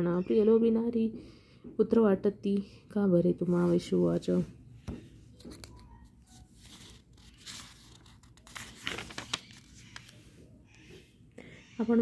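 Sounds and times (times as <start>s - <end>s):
book pages rustling: 4.8s - 11.0s.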